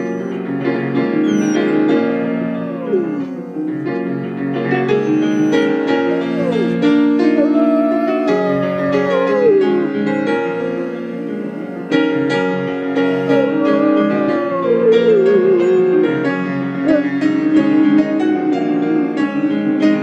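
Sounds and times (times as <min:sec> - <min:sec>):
dog howling: 0:00.0 - 0:20.0
piano playing: 0:00.0 - 0:20.0.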